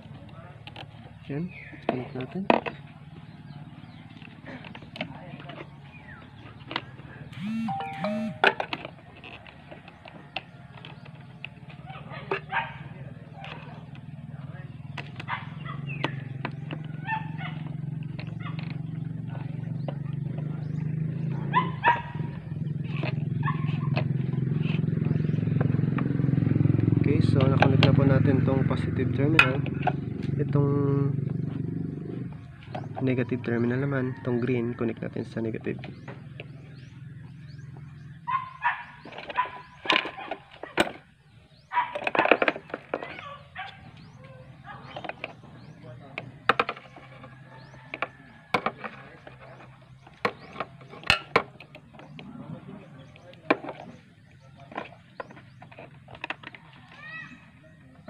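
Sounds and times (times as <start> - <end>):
low engine-like hum: 0.0 - 41.7, 43.0 - 58.0
dog barking: 11.9 - 12.9, 17.0 - 17.6, 21.4 - 22.3, 23.4 - 23.9, 38.3 - 40.4, 41.7 - 42.4, 43.2 - 43.9, 44.6 - 45.0.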